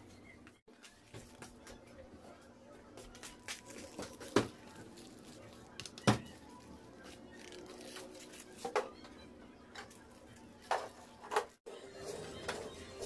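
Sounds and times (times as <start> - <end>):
paper cups being handled: 3.0 - 9.0.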